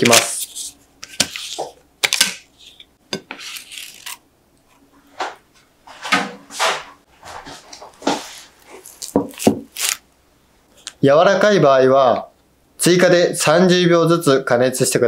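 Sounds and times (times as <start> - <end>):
paper rustling: 0.0 - 2.8.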